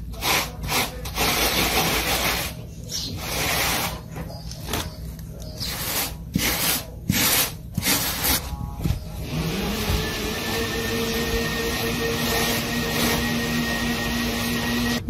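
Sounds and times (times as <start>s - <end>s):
sponge rubbing on cement: 0.1s - 4.1s, 5.6s - 8.6s.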